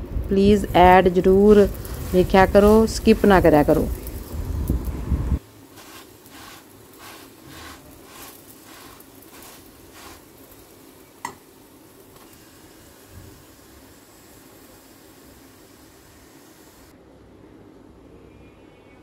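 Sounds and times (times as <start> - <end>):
flatbread sizzling on griddle: 0.0 - 16.9
brush strokes greasing: 5.7 - 10.8.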